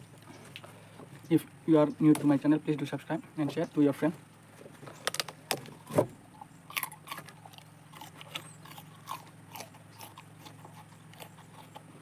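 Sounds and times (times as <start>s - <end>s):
person chewing with mouth clicks: 6.4s - 12.0s.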